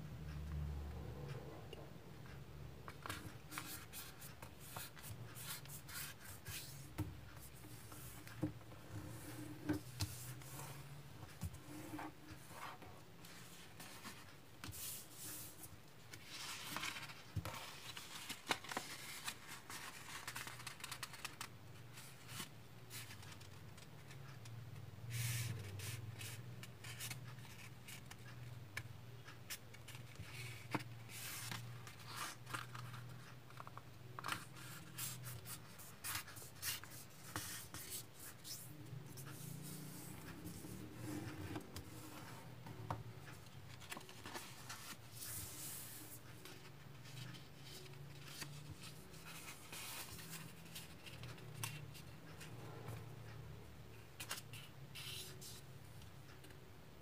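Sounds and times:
paper rustling and crackling: 16.1s - 23.9s.

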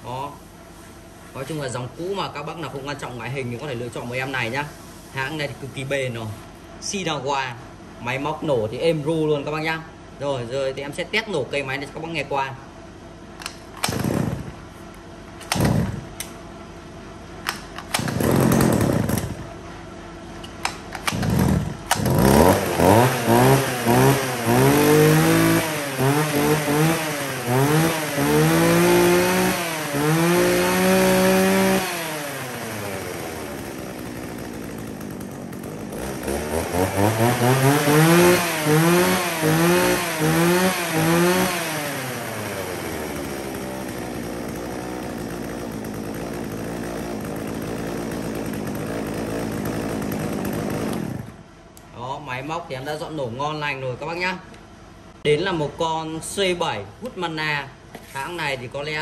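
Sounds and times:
chainsaw starter cord pulls: 13.4s - 14.6s, 15.3s - 16.4s, 17.4s - 19.5s, 20.4s - 51.4s
chainsaw engine revving and idling: 13.4s - 16.4s, 17.5s - 19.6s, 20.6s - 51.5s.

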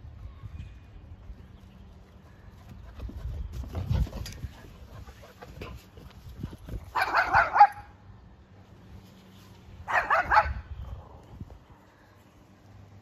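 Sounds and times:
dog barking: 6.9s - 7.9s, 9.9s - 10.6s.

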